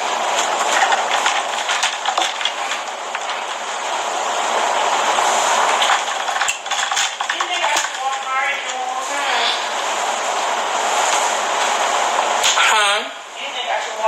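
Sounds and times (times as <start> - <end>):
clicks and rattles in metal tumbler: 5.8 - 8.8.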